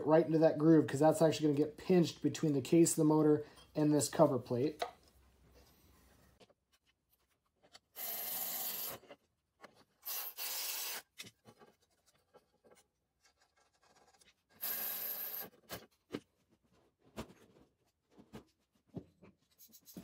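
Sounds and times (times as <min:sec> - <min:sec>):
electric ratchet running: 0:08.0 - 0:09.0, 0:10.0 - 0:11.0, 0:14.6 - 0:15.5.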